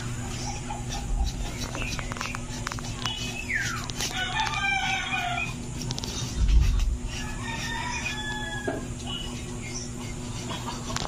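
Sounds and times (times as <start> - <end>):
rooster crowing: 4.0 - 5.8, 7.1 - 9.2.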